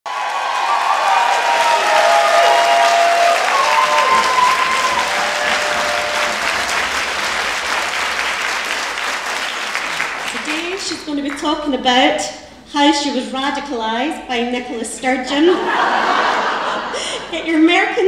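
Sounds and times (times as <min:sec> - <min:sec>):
audience applauding: 0:00.1 - 0:11.4.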